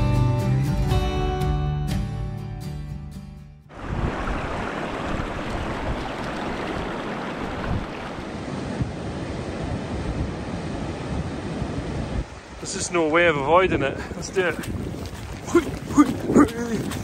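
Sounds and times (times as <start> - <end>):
sea surf breaking on beach: 3.7 - 17.0
wind buffeting microphone: 3.7 - 17.0.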